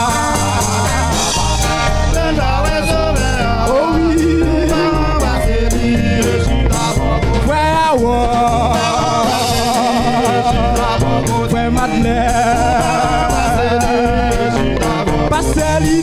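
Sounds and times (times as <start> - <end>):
drum kit steady beat: 0.0 - 16.0
male voices singing together: 0.0 - 16.0.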